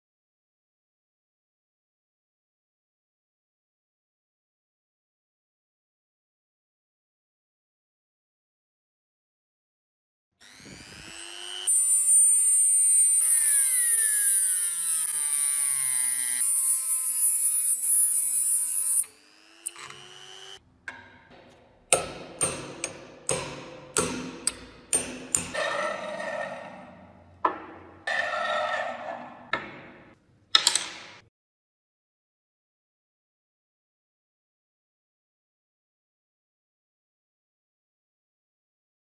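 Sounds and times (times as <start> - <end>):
rotary tool grinding metal: 10.4 - 20.6, 22.4 - 26.6
sharp knocks: 20.9 - 25.6.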